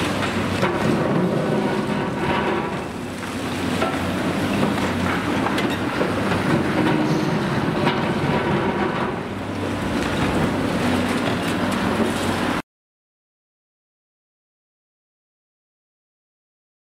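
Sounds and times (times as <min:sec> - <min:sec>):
hydraulic crusher breaking concrete: 0:00.0 - 0:03.1
excavator diesel engine running: 0:00.0 - 0:12.6.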